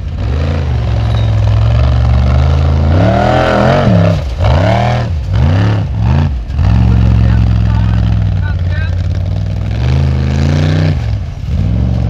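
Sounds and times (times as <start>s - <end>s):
buggy engine revving: 0.0s - 12.0s.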